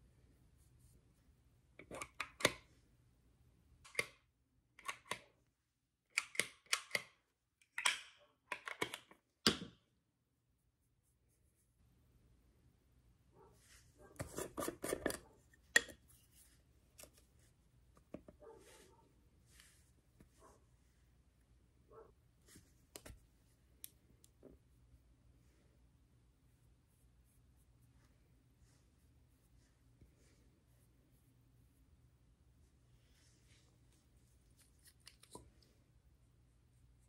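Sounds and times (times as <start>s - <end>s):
makeup containers clicking: 1.8s - 2.7s, 6.1s - 9.8s.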